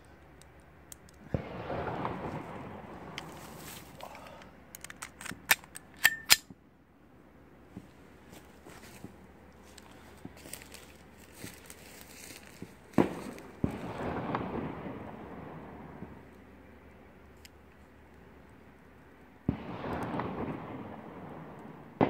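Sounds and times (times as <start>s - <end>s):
deep echoing bangs: 1.2s - 3.6s, 12.7s - 16.3s, 19.5s - 22.0s.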